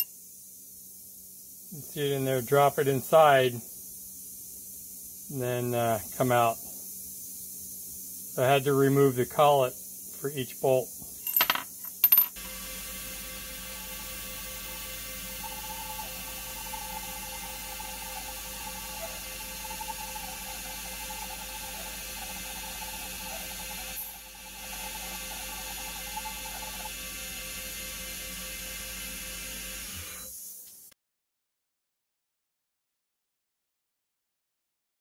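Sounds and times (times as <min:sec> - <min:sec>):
drill cutting steel: 0:12.4 - 0:30.4.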